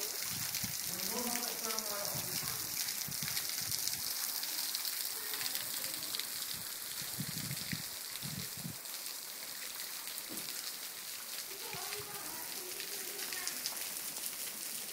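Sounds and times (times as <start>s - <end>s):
waterfall splashing onto rocks: 0.0s - 14.9s.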